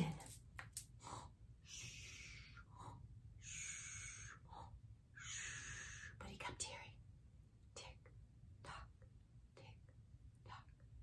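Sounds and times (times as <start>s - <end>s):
woman breathing softly: 0.9s - 6.3s.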